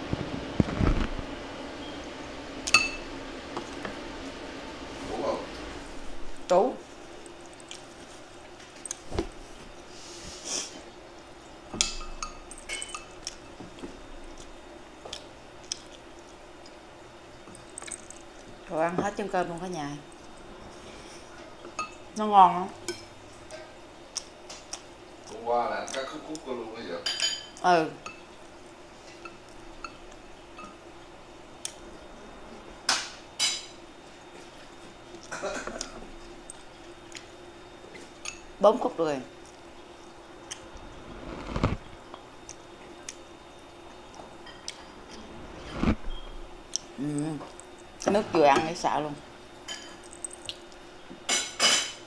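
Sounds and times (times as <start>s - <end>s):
utensils clinking on ceramic dishes: 11.8s - 13.5s, 27.0s - 28.2s.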